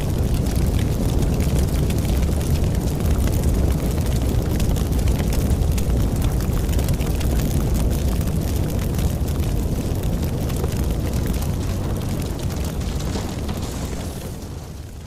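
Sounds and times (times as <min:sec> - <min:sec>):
fire crackling and popping: 0:00.0 - 0:15.0
low rumble of flames: 0:00.0 - 0:15.0.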